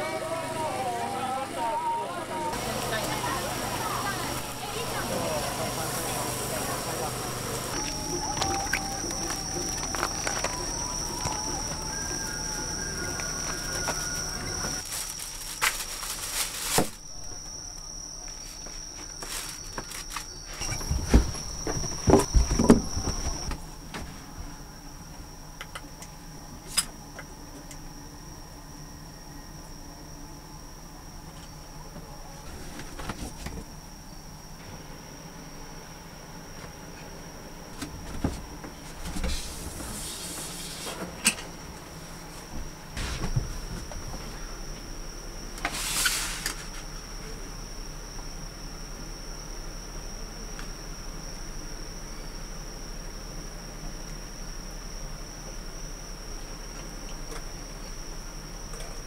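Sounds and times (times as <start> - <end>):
high insect trill: 0.0 - 59.0
plastic bag rustling: 7.7 - 17.4, 18.4 - 23.5
paper food tray crinkling: 13.3 - 17.1, 18.4 - 20.6.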